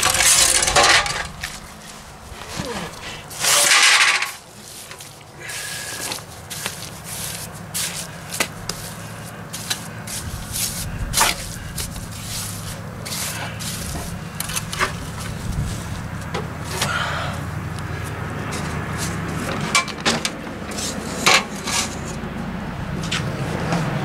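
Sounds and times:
trowel scraping wet mortar: 6.5s - 15.9s.

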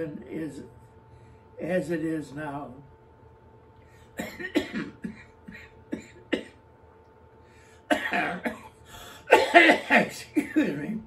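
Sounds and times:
elderly man coughing: 4.2s - 6.6s, 7.8s - 11.0s.

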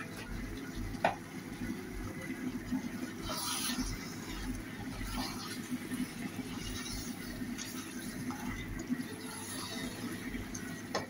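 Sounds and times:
spatula stirring meat in pan: 2.6s - 11.0s.

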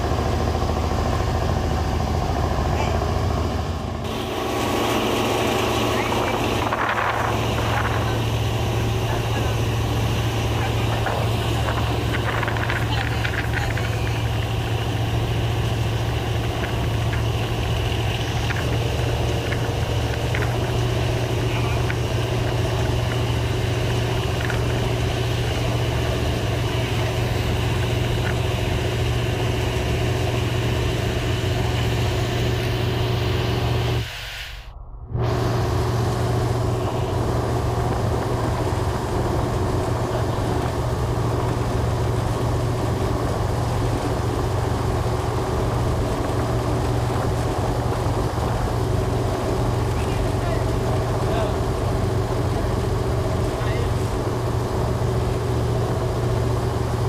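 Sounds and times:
diesel boat engine droning: 0.0s - 57.0s
water rushing past boat: 0.0s - 57.0s
wind rushing: 33.0s - 39.8s.

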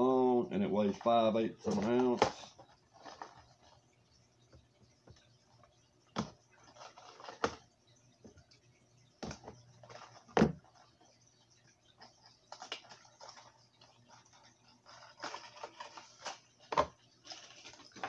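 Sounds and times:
plastic crinkling: 12.0s - 18.0s.

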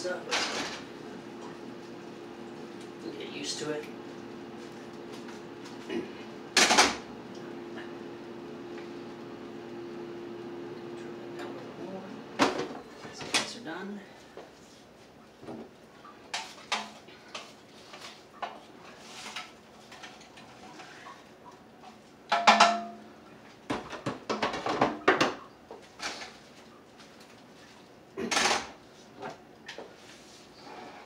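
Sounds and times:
pots and pans clattering: 0.3s - 0.8s, 22.3s - 23.0s, 23.7s - 25.4s, 28.2s - 28.8s.

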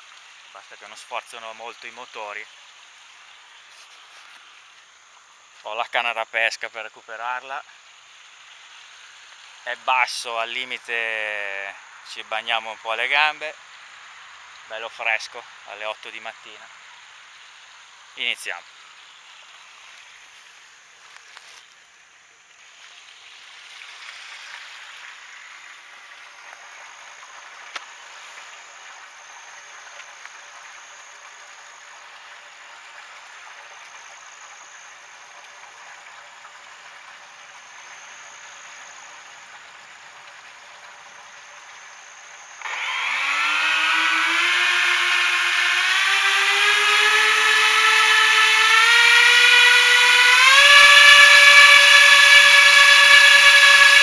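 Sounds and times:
electric motors whining: 42.6s - 54.0s.

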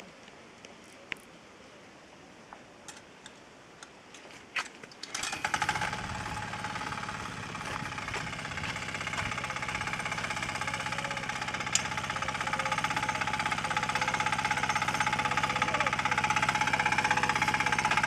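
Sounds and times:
tractor engine puttering: 5.0s - 18.0s.

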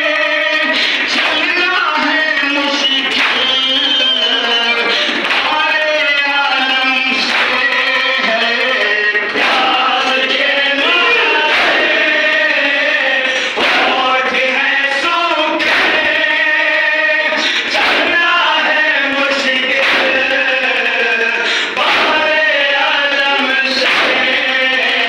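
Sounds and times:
men chanting in unison: 0.0s - 25.0s
collective chest-beating: 9.4s - 14.2s, 19.6s - 22.2s.

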